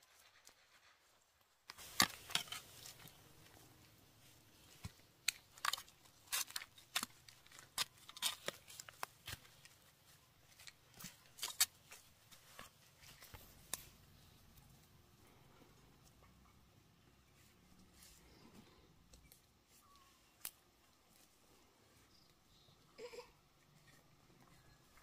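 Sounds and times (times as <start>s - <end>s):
roots tearing and dirt crumbling: 1.7s - 3.6s, 4.6s - 9.8s.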